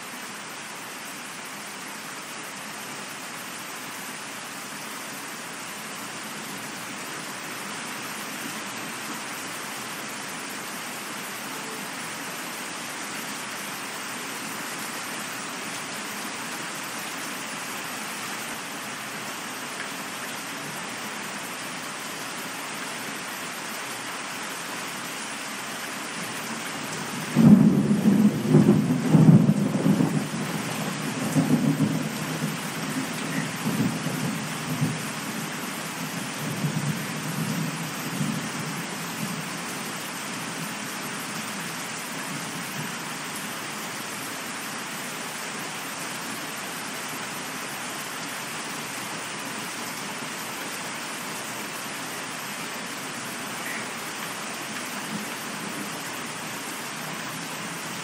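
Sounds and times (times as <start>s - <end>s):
steady rain: 0.0s - 58.0s
rolling thunder: 27.3s - 32.6s.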